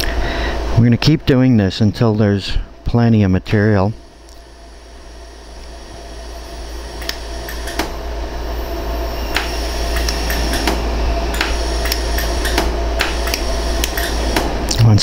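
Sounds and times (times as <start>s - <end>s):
low hum: 0.0s - 15.0s
laser welder clicks: 7.0s - 8.0s, 9.3s - 14.8s.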